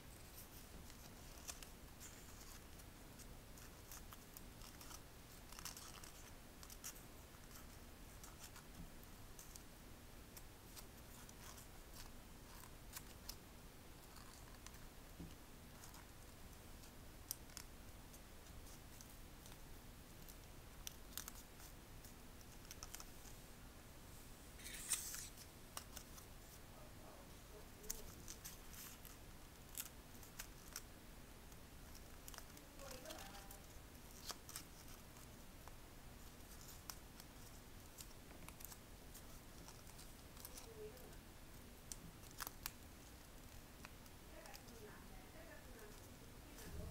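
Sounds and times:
paper crinkling while folded: 0.2s - 9.7s, 31.8s - 46.8s
paper rustle: 24.6s - 26.6s.

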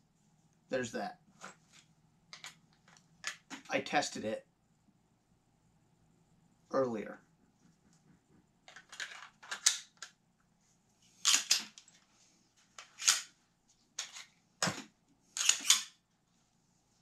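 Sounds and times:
pistol slide racking clacks: 11.2s - 11.8s, 12.8s - 13.3s, 15.4s - 16.0s.

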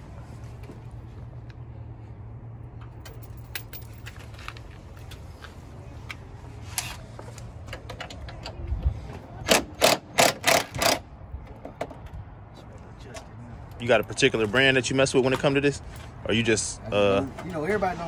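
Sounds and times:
impact driver bursts: 9.5s - 11.0s.

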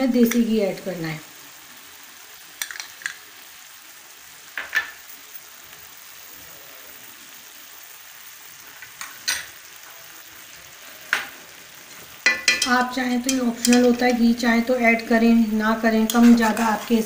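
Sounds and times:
faint sizzle of cooking: 0.0s - 17.0s
steel spoon clinking and scraping: 12.3s - 14.2s.

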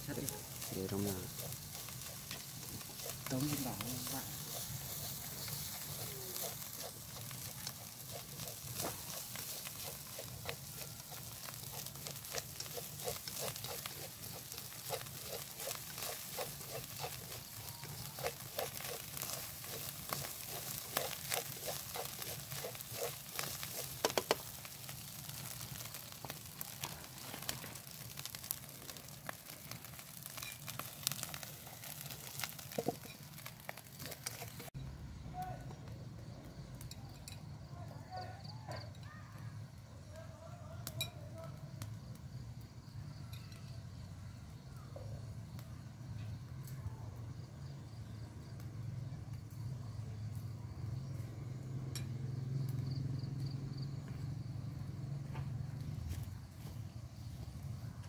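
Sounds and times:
steady hiss: 0.0s - 35.6s
open fire crackling and popping: 0.0s - 58.0s.

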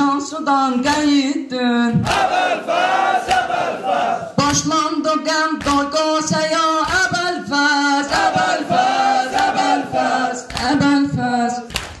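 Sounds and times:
men chanting long held notes: 2.1s - 4.4s, 8.1s - 10.5s
chest-beating slaps: 3.2s - 3.6s.

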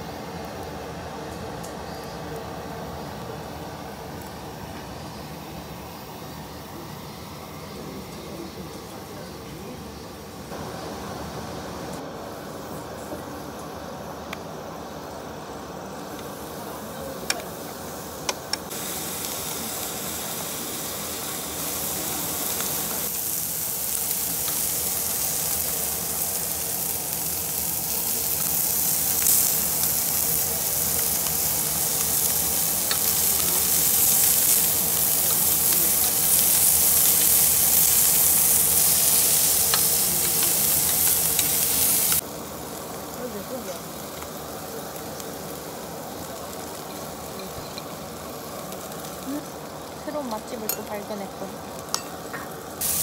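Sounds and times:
meat sizzling on grill plate: 15.9s - 53.0s.

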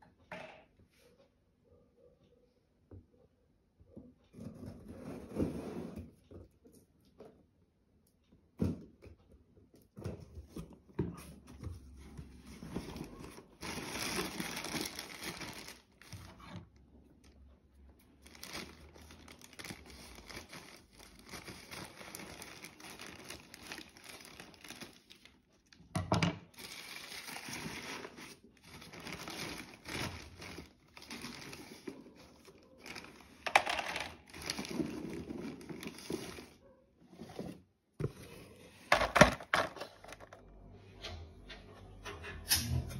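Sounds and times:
plastic bag crinkling: 12.8s - 16.4s, 18.2s - 25.4s, 26.5s - 36.6s.

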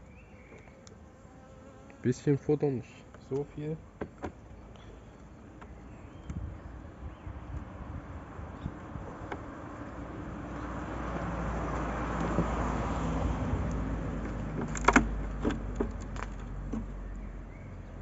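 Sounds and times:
vehicle passing by: 6.9s - 18.0s.

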